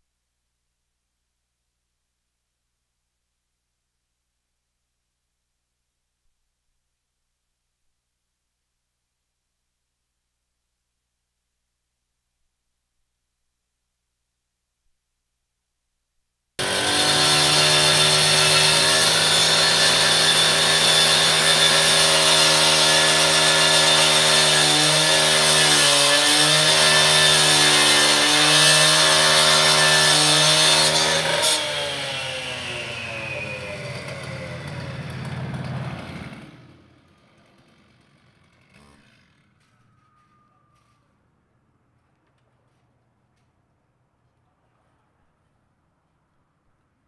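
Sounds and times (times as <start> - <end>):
cut-off saw cutting metal fence: 16.6 - 40.4.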